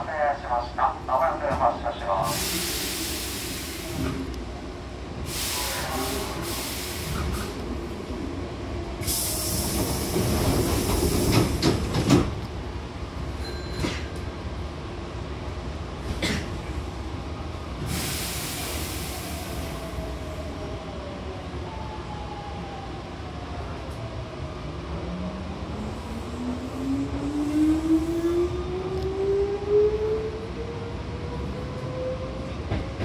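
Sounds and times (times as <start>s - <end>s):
air hiss of train doors: 2.2s - 4.3s, 5.2s - 7.7s, 9.0s - 12.3s, 17.8s - 19.9s.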